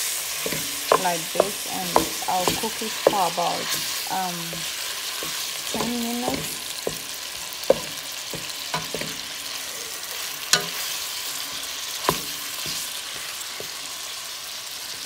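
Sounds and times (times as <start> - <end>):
meat sizzling in frying pan: 0.0 - 15.0
spatula knocking against pan: 0.4 - 9.3.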